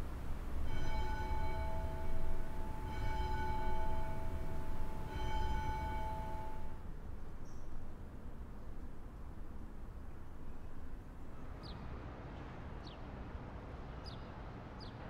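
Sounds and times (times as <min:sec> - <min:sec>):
low steady rumble: 0:00.0 - 0:12.3
bell ringing: 0:00.7 - 0:06.8.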